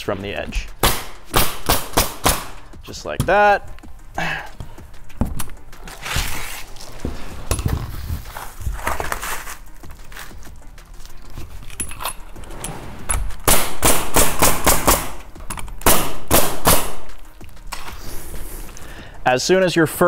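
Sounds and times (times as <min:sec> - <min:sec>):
nail gun firing into shingles: 0:00.8 - 0:02.6, 0:15.8 - 0:17.1
shuffling and handling noise: 0:03.6 - 0:13.4.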